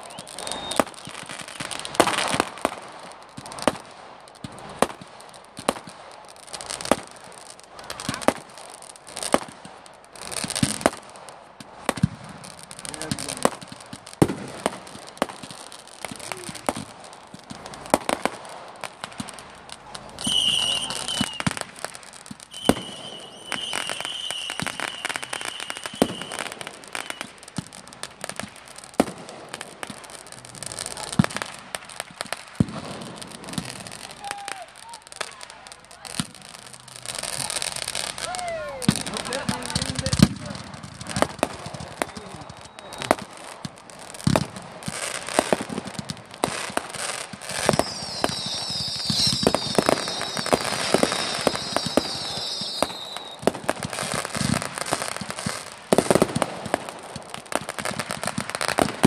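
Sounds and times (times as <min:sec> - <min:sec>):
high steady whistle: 0:00.0 - 0:01.7, 0:20.2 - 0:21.6, 0:22.5 - 0:27.4, 0:42.0 - 0:43.2, 0:47.6 - 0:53.5
fireworks bangs and crackles: 0:00.0 - 0:59.0.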